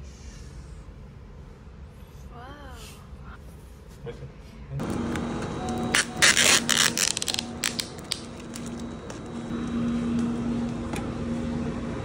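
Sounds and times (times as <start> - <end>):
steady low hum: 0.0 - 12.0
plastic packaging crinkling: 5.9 - 9.2.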